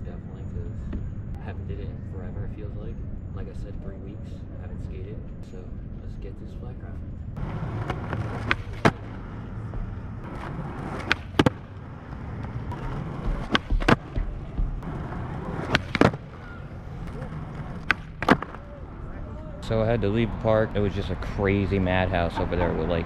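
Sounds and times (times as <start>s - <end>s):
skateboard wheels rolling on asphalt: 7.4s - 23.0s
skateboard tail pop clacks: 9.7s - 11.7s, 15.5s - 16.3s.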